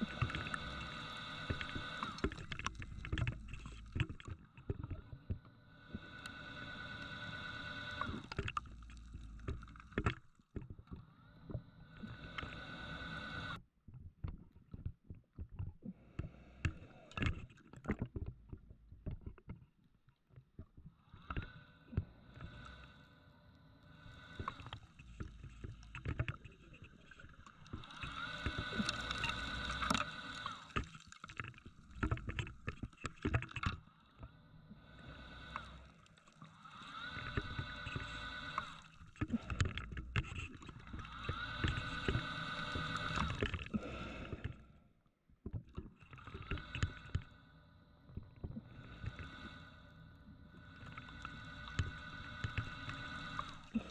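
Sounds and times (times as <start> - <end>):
regulator inhalation whistling hum: 26.9 - 30.8, 40.6 - 43.4.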